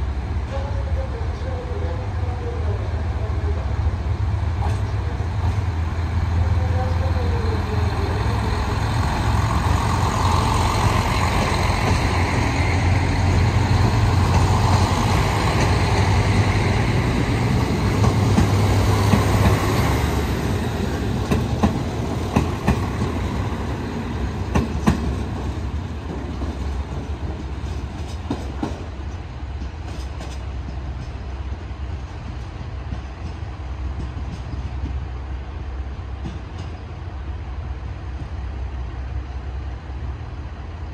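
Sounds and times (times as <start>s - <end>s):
diesel engine rumble: 3.0s - 28.0s.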